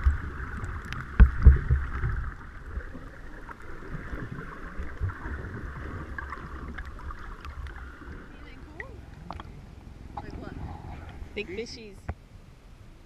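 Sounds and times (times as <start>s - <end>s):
muffled underwater thumps: 0.0s - 3.0s, 8.4s - 11.4s
underwater hiss and sloshing: 0.0s - 11.9s.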